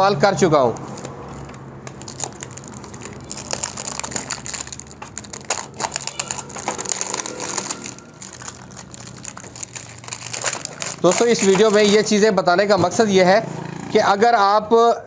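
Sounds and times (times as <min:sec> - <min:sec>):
plastic wrap crinkling: 0:00.8 - 0:12.3.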